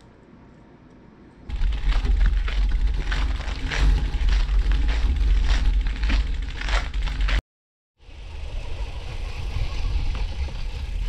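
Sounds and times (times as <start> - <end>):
footsteps on gravel: 1.5 - 7.4.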